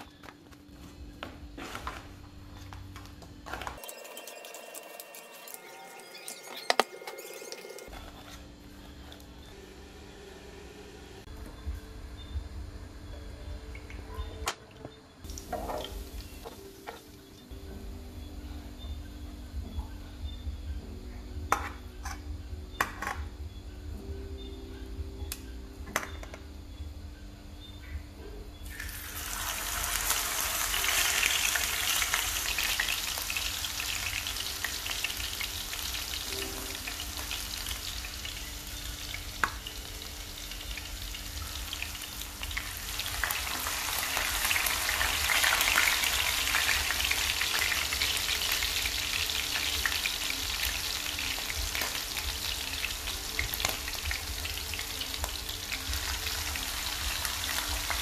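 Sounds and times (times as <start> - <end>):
meat sizzling in hot oil: 28.6 - 58.0.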